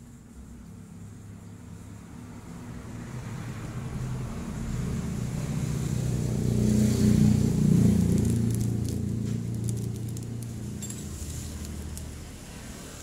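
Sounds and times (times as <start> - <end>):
vehicle engine approaching: 1.7 - 13.0.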